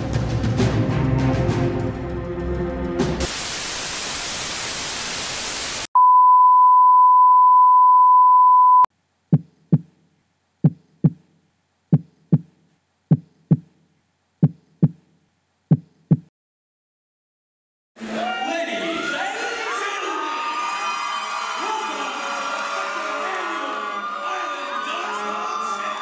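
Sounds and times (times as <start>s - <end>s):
television static hissing: 3.2s - 5.9s
high test-tone beep: 6.0s - 8.9s
heartbeat double thumps: 9.3s - 10.0s, 10.6s - 11.3s, 11.9s - 13.8s, 14.4s - 15.1s, 15.7s - 16.3s.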